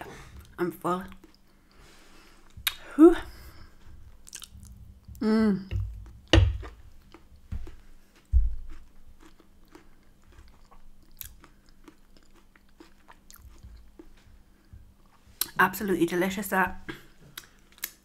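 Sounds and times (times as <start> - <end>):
wet chewing: 0.4 - 1.8, 4.2 - 4.8, 5.9 - 14.2
mouth clicks and smacks: 2.5 - 2.9, 4.2 - 4.7, 17.4 - 18.0.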